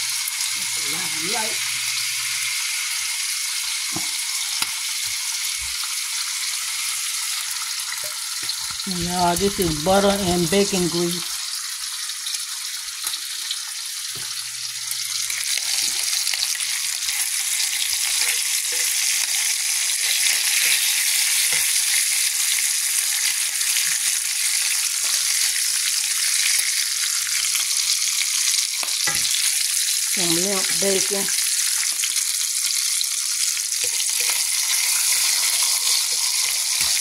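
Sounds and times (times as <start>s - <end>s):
bacon frying with small pops: 0.0s - 37.0s.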